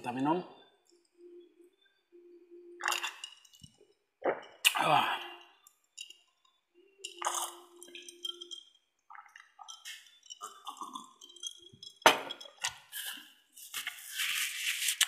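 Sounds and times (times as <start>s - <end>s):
person gulping and swallowing: 4.2s - 5.4s, 7.2s - 7.7s, 9.1s - 11.2s
ice shifting in glass: 7.0s - 14.7s.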